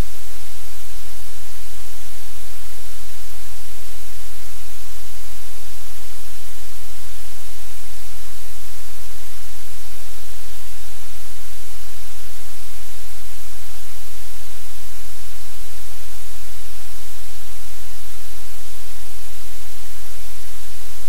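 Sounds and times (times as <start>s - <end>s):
static hiss: 0.0s - 21.0s.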